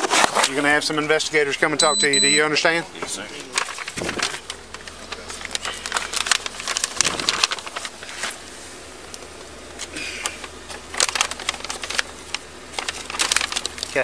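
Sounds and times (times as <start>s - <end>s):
paper bag crinkling: 3.4s - 8.6s, 10.6s - 14.0s.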